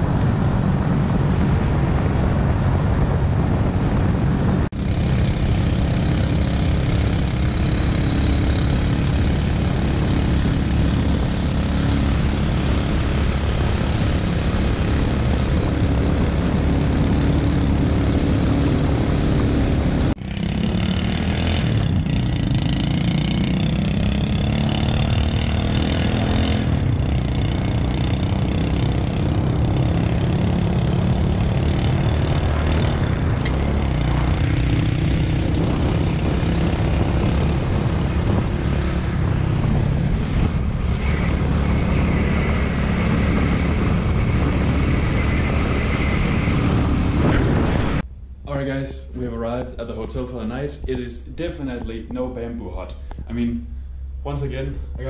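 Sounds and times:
wind buffeting microphone: 0:00.0 - 0:55.0
motorbike engine running: 0:04.8 - 0:48.4.

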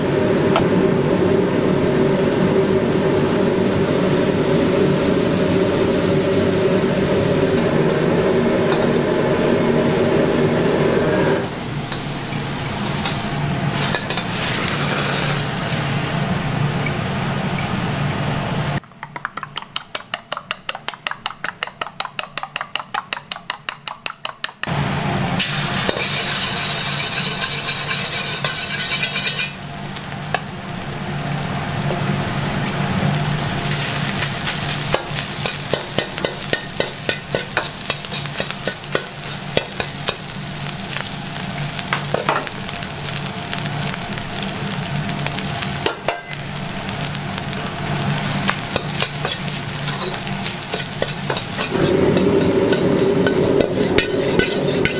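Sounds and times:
egg sizzling in hot oil: 0:11.7 - 0:16.3, 0:25.4 - 0:54.9
metal ladle scraping wok: 0:13.0 - 0:15.6, 0:25.4 - 0:29.6, 0:33.6 - 0:40.2, 0:48.6 - 0:54.9
spoon beating eggs in steel bowl: 0:18.8 - 0:24.7.

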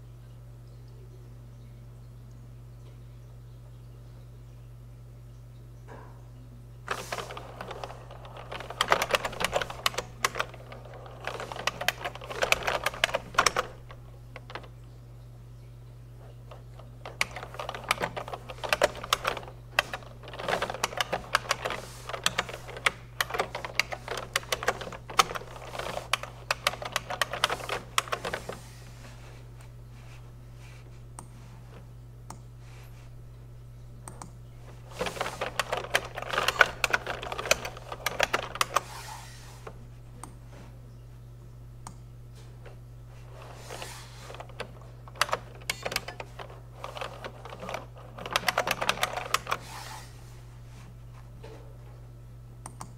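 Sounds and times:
steady low hum: 0:00.0 - 0:52.9
typing on keyboard: 0:06.9 - 0:14.8, 0:16.5 - 0:28.6, 0:34.9 - 0:38.9, 0:43.7 - 0:49.7.

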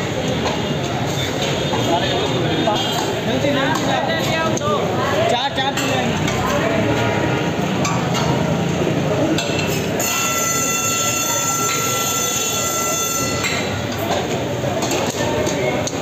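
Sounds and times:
traffic: 0:00.0 - 0:16.0
voices: 0:00.0 - 0:16.0
high multi-tone squeal: 0:10.0 - 0:13.8.

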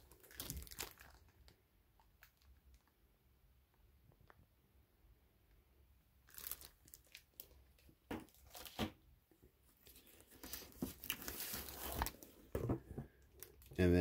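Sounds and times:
plastic bags crinkling: 0:00.0 - 0:02.9, 0:06.3 - 0:08.8.

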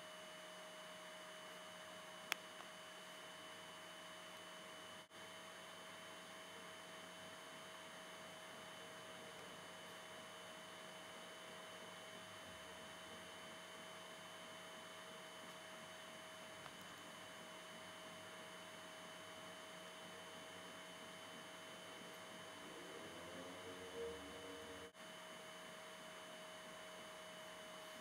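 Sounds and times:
faint steady hum and hiss: 0:00.0 - 0:28.0.

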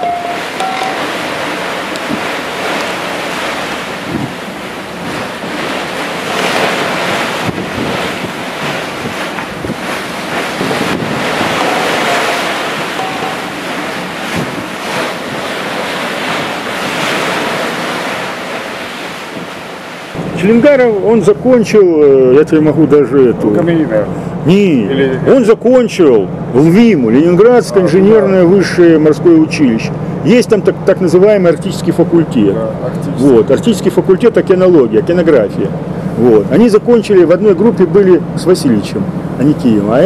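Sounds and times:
sea washing: 0:00.0 - 0:24.6
wind buffeting microphone: 0:00.4 - 0:20.8.

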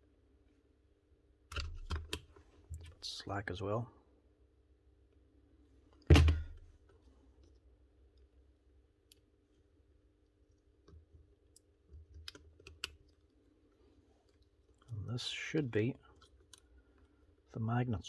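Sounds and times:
clicks and knocks of wires: 0:01.5 - 0:03.0.

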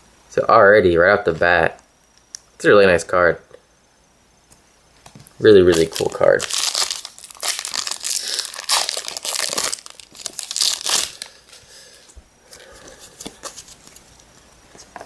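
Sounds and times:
cards being handled: 0:05.0 - 0:14.2
foil wrapper crinkling and tearing: 0:05.4 - 0:14.1.

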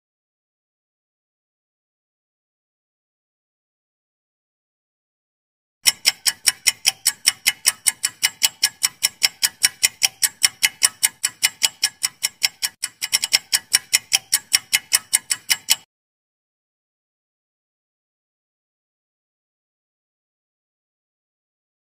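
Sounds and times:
rapid clock ticking: 0:05.8 - 0:15.9.

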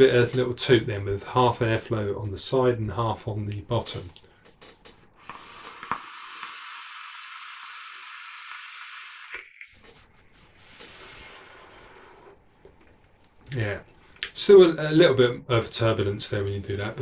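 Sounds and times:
hiss of air through vaporizer: 0:05.2 - 0:09.4, 0:10.6 - 0:12.4
soft hiss of vapour exhaled: 0:05.2 - 0:09.4, 0:10.5 - 0:12.5.

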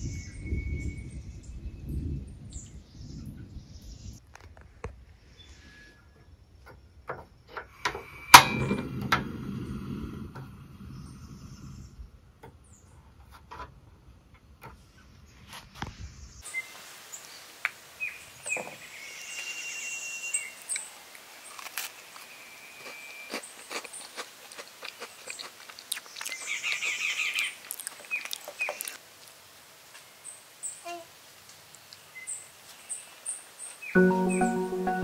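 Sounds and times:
birds chirping: 0:25.0 - 0:29.0, 0:31.9 - 0:35.0.

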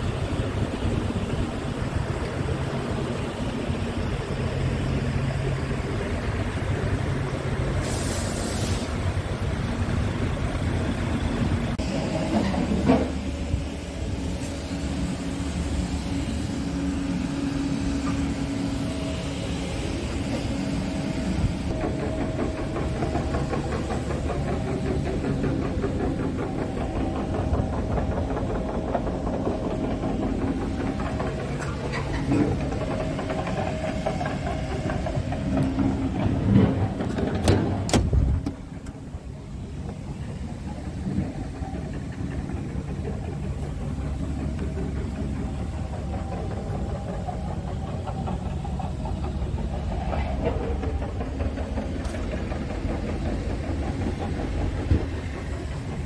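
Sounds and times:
diesel engine idling: 0:00.0 - 0:56.0.

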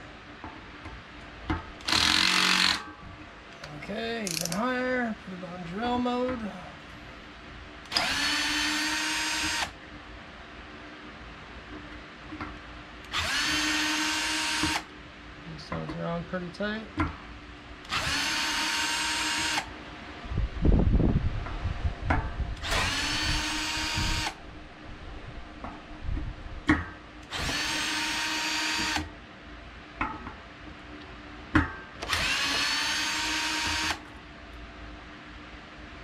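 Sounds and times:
power drill running: 0:01.8 - 0:02.8, 0:07.9 - 0:09.8, 0:13.1 - 0:14.9, 0:17.9 - 0:19.7, 0:22.6 - 0:24.4, 0:27.3 - 0:29.1, 0:32.0 - 0:34.0.

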